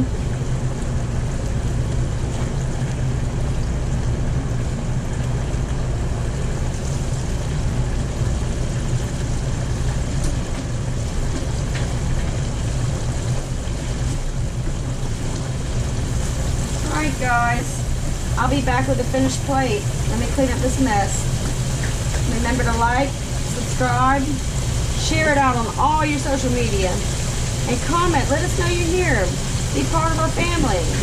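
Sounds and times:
constant low hum: 0:00.0 - 0:31.0
hot oil sizzling in deep fryer: 0:00.0 - 0:31.0.

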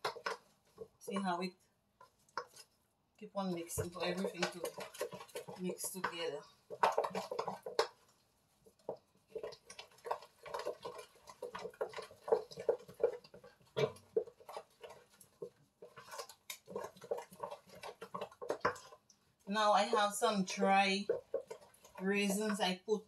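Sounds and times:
spoon scraping and knocking bowl: 0:00.0 - 0:01.3, 0:03.6 - 0:08.1, 0:08.7 - 0:22.7
spoon stirring batter in bowl: 0:00.0 - 0:23.0.

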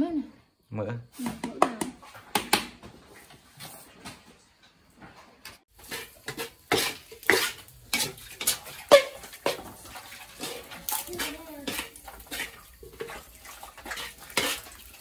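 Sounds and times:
utensil scraping a pot: 0:05.7 - 0:15.0.

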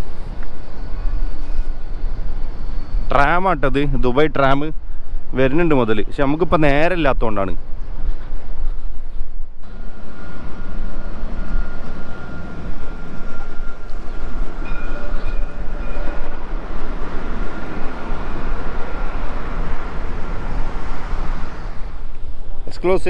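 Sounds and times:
thin high whine: 0:00.0 - 0:06.9, 0:07.6 - 0:23.0
tram rumbling: 0:00.0 - 0:23.0
brief higher tone: 0:09.7 - 0:16.4.

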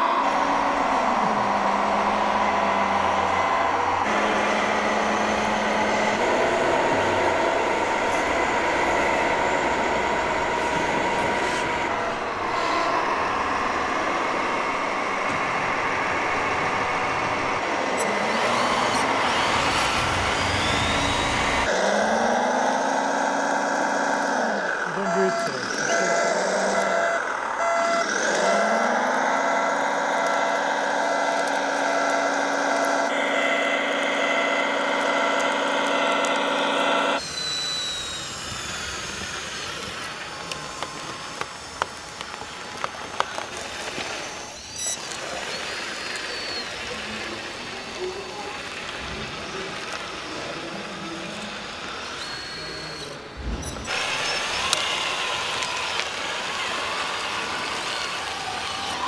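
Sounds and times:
model dozer droning: 0:00.0 - 0:59.0
model tractor whirring: 0:00.0 - 0:59.0
scattered clicks: 0:29.7 - 0:33.1, 0:39.0 - 0:46.9.

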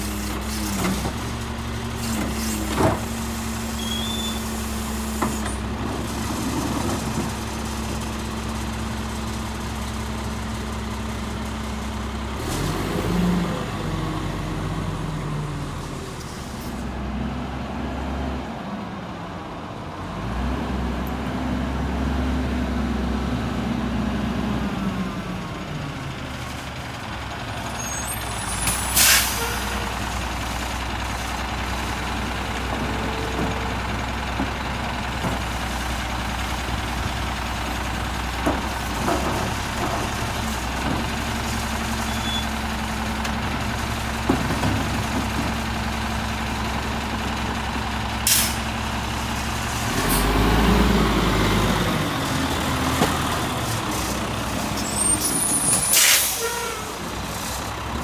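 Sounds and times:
diesel engine running: 0:19.4 - 0:58.0
air brake hiss: 0:27.8 - 0:29.8, 0:48.2 - 0:48.6, 0:54.8 - 0:57.0.

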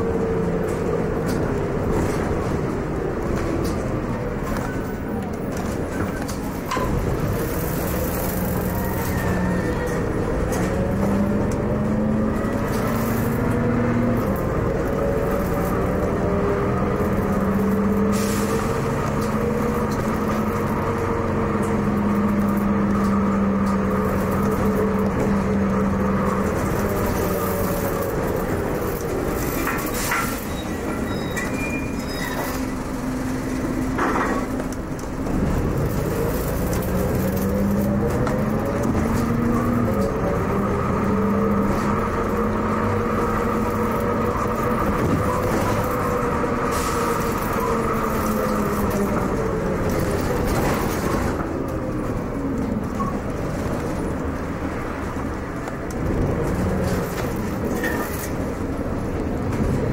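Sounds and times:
bus diesel engine running: 0:00.0 - 0:59.9
rattles and squeaks: 0:21.6 - 0:40.2, 0:56.5 - 0:58.7.

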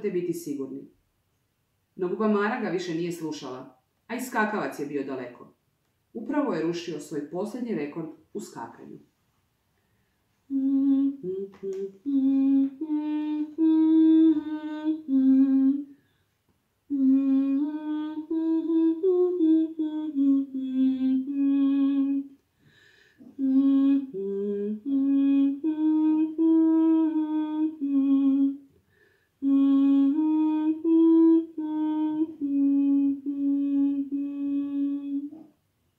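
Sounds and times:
woman humming a melody: 0:10.5 - 0:16.0, 0:16.9 - 0:22.4, 0:23.2 - 0:28.6, 0:29.4 - 0:35.6.

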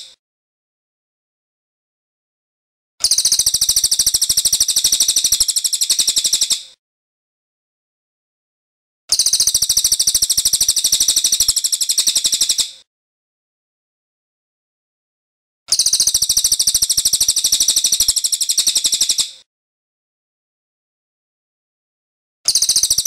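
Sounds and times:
bird singing rolling phrases: 0:03.0 - 0:06.6, 0:09.1 - 0:12.8, 0:15.7 - 0:19.4, 0:22.5 - 0:23.0.

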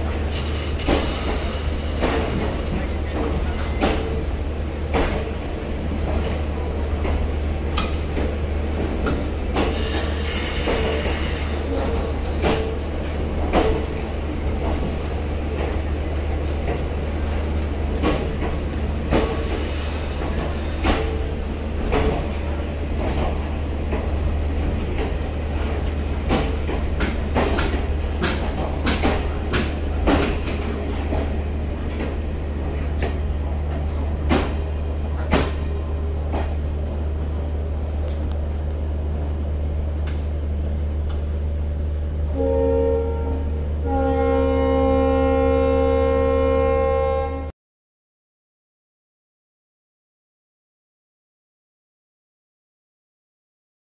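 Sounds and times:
train wheels clacking over joints: 0:00.2 - 0:05.4, 0:06.0 - 0:36.7
locomotive horn: 0:42.3 - 0:47.5.

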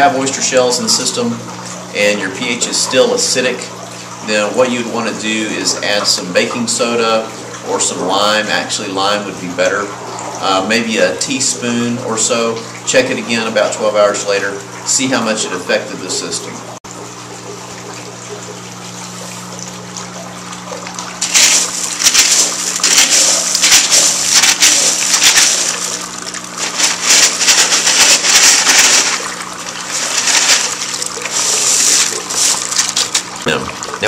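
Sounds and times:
low steady hum: 0:15.3 - 0:34.0
water trickling among pebbles: 0:16.9 - 0:34.0
hands digging through pebbles: 0:21.2 - 0:33.3.

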